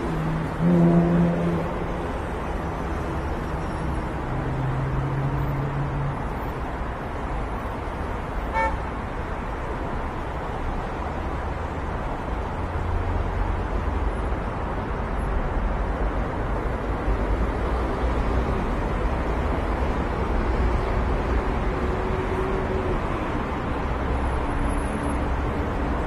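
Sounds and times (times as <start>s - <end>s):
deep vehicle horn: 0.0s - 2.9s, 8.5s - 8.8s
low road traffic rumble: 0.0s - 26.0s.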